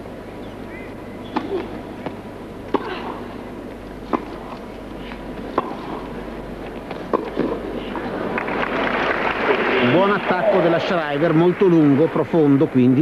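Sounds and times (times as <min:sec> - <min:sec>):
arena hum: 0:00.0 - 0:13.0
tennis ball hit by racket: 0:02.7 - 0:03.3, 0:04.0 - 0:04.6, 0:05.5 - 0:06.1, 0:06.8 - 0:08.0.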